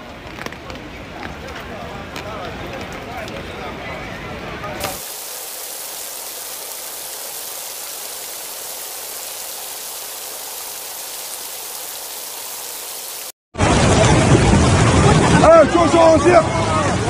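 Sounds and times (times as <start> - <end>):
water hissing: 4.8 - 13.4
loud noise: 4.8 - 14.7.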